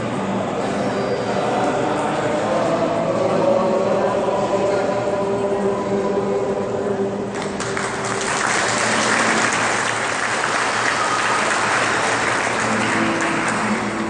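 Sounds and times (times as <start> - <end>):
men's choir holding a chord: 0.5 - 7.4
audience applauding: 7.3 - 14.0.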